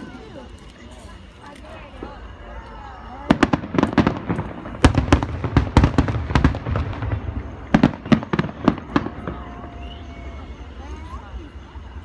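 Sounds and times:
fireworks cracking and banging: 0:03.1 - 0:10.5.

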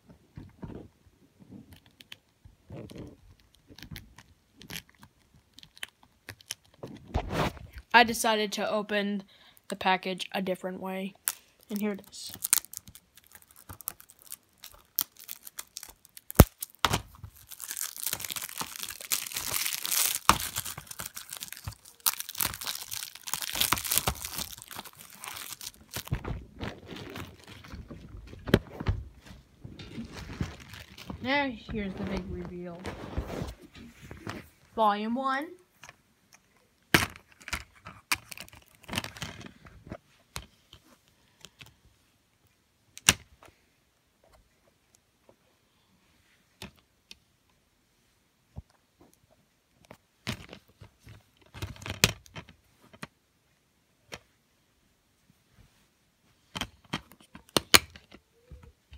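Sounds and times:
plastic wrap crinkling: 0:11.2 - 0:34.7, 0:38.0 - 0:39.4.

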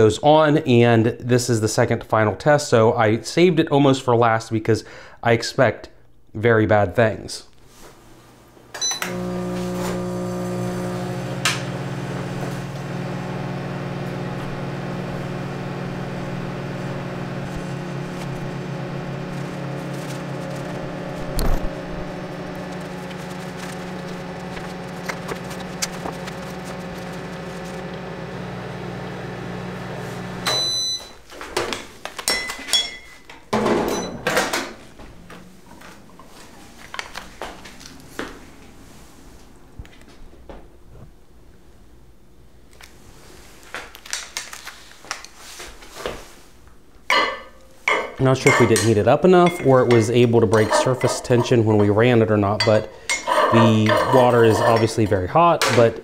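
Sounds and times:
microwave oven humming: 0:08.7 - 0:31.2
short high beeps: 0:30.5 - 0:31.2.

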